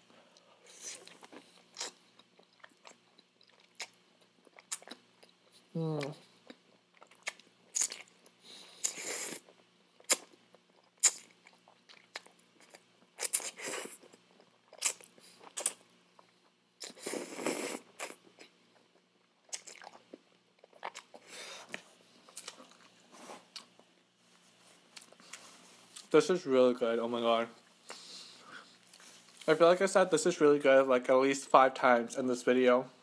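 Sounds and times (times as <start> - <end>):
chewing: 0.4 - 23.9.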